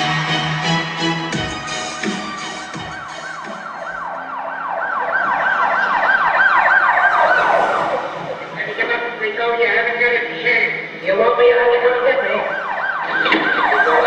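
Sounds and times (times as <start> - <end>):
dance music: 0.0 - 8.8
siren wailing: 0.0 - 9.2, 11.9 - 14.0.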